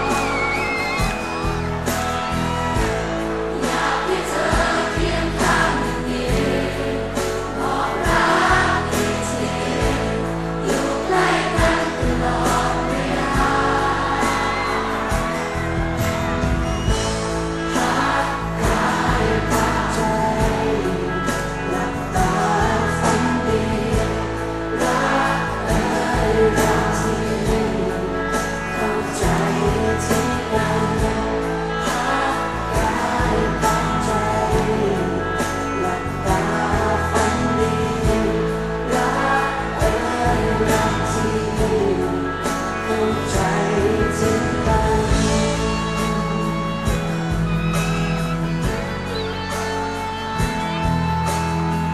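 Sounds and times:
live band playing pop song: 0.0s - 51.9s
people singing together: 3.5s - 15.7s, 17.6s - 46.5s.

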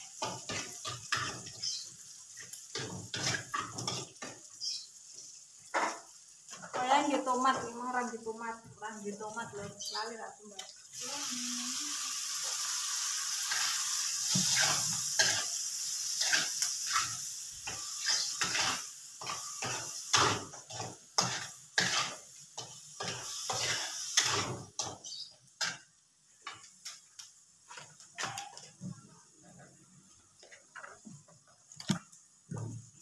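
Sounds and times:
metal spatula scraping a pan: 0.0s - 6.9s, 13.2s - 27.0s
food sizzling in a wok: 0.0s - 31.0s.

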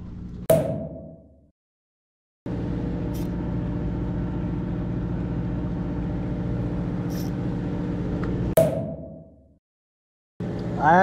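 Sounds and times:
sharp knock: 0.5s - 1.3s, 8.6s - 9.3s
boat engine droning: 2.5s - 8.5s.

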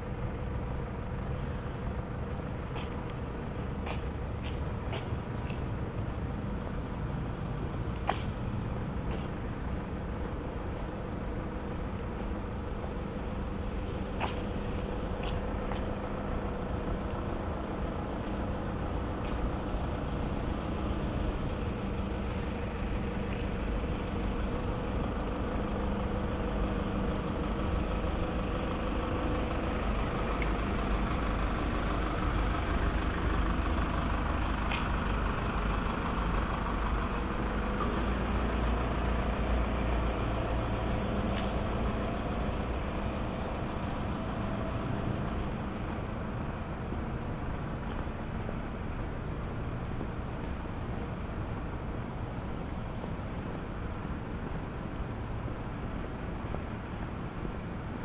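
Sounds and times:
building machinery hum: 0.0s - 58.0s
distant traffic drone: 0.0s - 58.0s
faint ticks: 1.2s - 6.3s, 37.6s - 42.4s.

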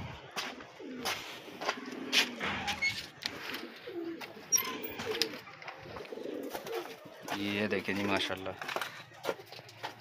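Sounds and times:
pigeons cooing: 0.3s - 7.4s.

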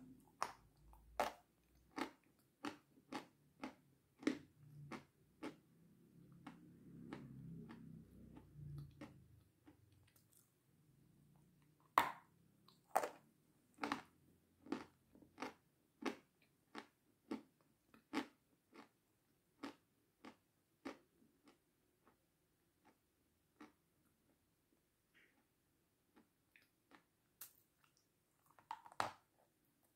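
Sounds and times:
meringue crunching when chewed: 0.3s - 10.5s, 12.7s - 19.0s, 19.6s - 22.2s, 26.1s - 29.2s.

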